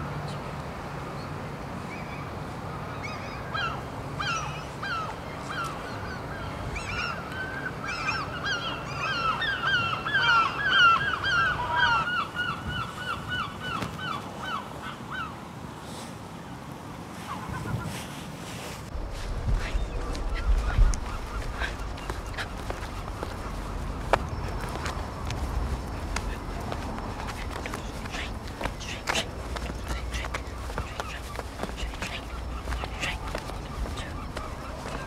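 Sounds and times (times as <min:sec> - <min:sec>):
steady background noise: 0:00.0 - 0:35.0
flock of birds honking: 0:25.8 - 0:35.0.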